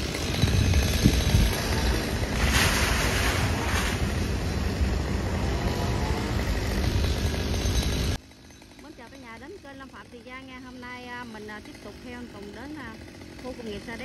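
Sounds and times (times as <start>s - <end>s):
chainsaw running: 0.0s - 14.0s
wind rumbling on microphone: 0.4s - 4.2s.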